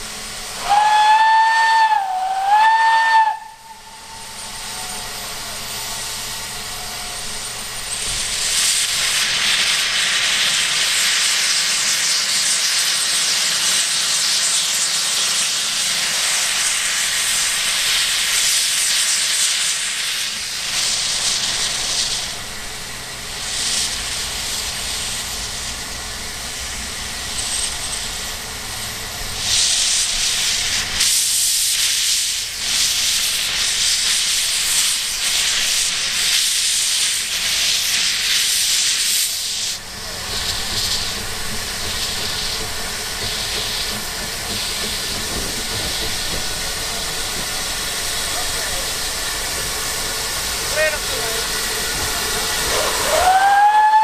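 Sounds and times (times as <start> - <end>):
loud hiss of steam: 0.0 - 54.0
steam locomotive whistle blasts: 0.6 - 5.2, 52.6 - 54.0.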